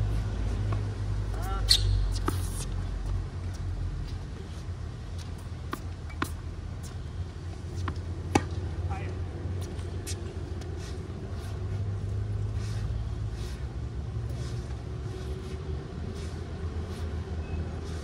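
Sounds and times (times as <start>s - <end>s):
city traffic rumble: 0.0s - 18.0s
tennis racket striking ball: 7.8s - 8.6s.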